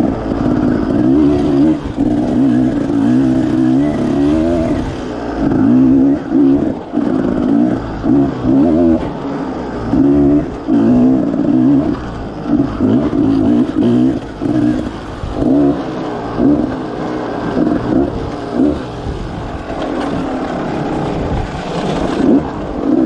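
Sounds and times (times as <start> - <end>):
dirt bike engine revving: 0.0 - 23.0.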